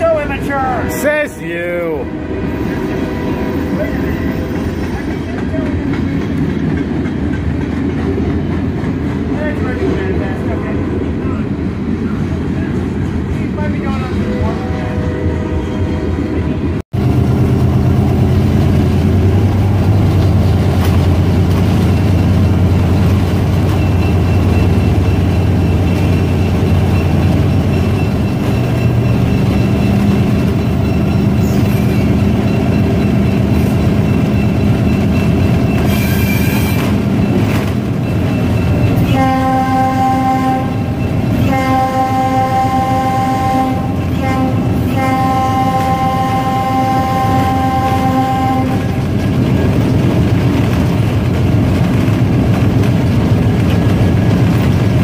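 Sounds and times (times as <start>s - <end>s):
diesel locomotive engine running: 0.0s - 55.0s
locomotive air horn blasts: 38.9s - 49.1s.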